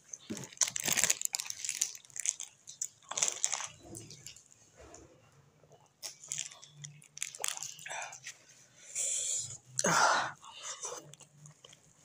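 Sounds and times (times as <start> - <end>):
plastic sachet crinkling: 0.1 - 4.4, 6.0 - 8.4
person chewing food: 5.6 - 8.4.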